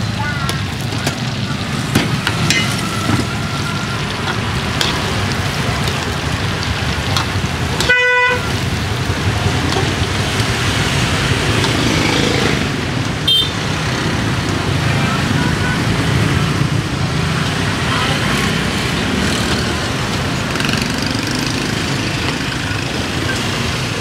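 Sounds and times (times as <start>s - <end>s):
oil sizzling: 0.0s - 24.0s
street traffic: 0.0s - 24.0s
vehicle horn toot: 7.8s - 8.5s, 13.3s - 13.6s.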